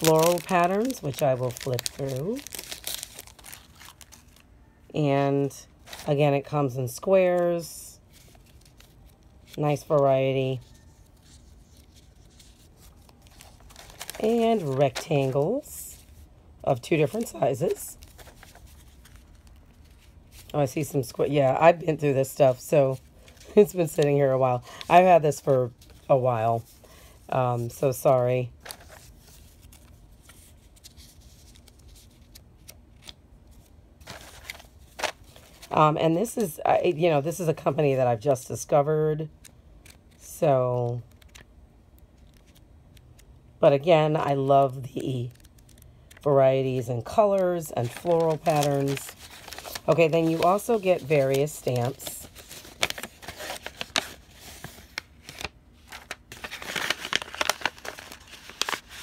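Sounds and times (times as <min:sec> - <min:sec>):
paper rustling: 0:00.0 - 0:04.4, 0:05.8 - 0:06.2, 0:08.1 - 0:16.2, 0:17.1 - 0:20.6, 0:28.0 - 0:35.8, 0:41.1 - 0:41.4, 0:47.0 - 0:59.0.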